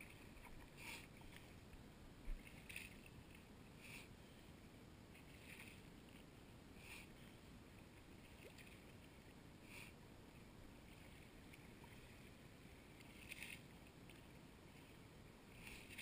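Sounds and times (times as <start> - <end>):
shallow water sloshing: 7.3 - 9.4.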